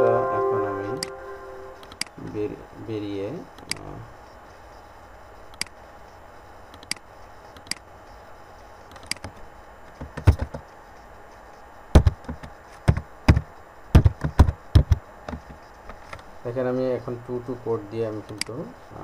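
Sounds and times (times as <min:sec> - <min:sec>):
mouse clicks: 0:05.5 - 0:05.8, 0:06.8 - 0:07.0.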